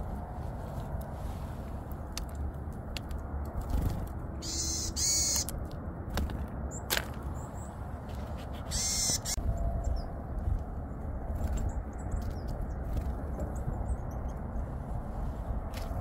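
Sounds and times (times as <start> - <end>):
wind rumble on microphone: 0.0 - 16.0
tits calling: 4.4 - 5.6, 6.7 - 10.2.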